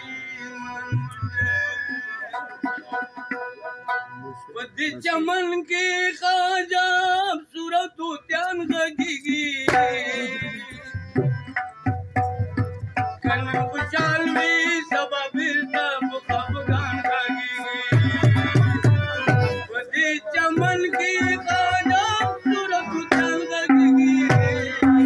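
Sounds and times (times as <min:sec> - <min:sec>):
harmonium drone: 0:00.0 - 0:06.1, 0:09.6 - 0:25.0
man singing: 0:04.3 - 0:11.4, 0:13.2 - 0:25.0
tabla strokes: 0:09.6 - 0:19.7.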